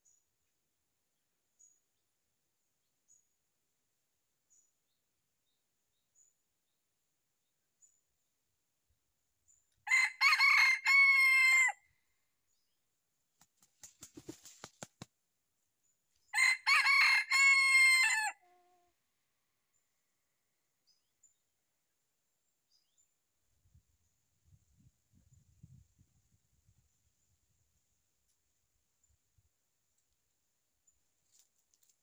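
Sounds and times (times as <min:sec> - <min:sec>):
rooster crowing: 0:09.9 - 0:11.8, 0:16.4 - 0:18.6
faint rustling clicks: 0:31.2 - 0:32.0.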